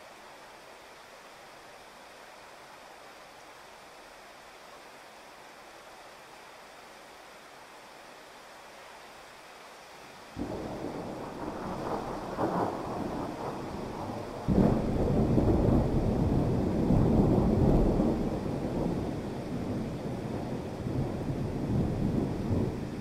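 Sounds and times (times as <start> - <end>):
heavy rain: 0.0 - 23.0
thunder rumbling: 10.4 - 23.0.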